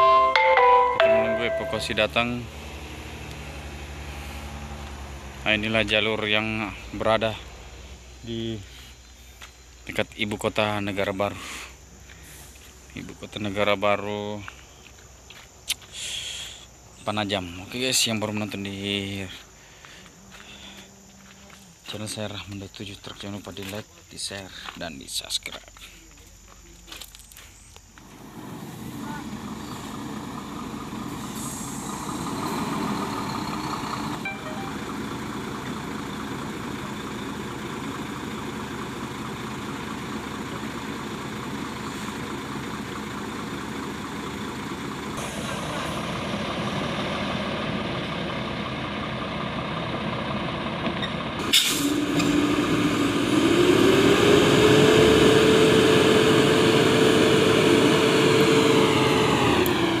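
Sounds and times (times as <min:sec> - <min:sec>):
diesel truck engines running: 0:00.0 - 0:24.8, 0:25.6 - 1:00.0
engine revving: 0:01.8 - 0:06.3, 0:28.1 - 0:36.4, 0:44.2 - 1:00.0
air brake hiss: 0:31.1 - 0:32.8, 0:51.5 - 0:52.0.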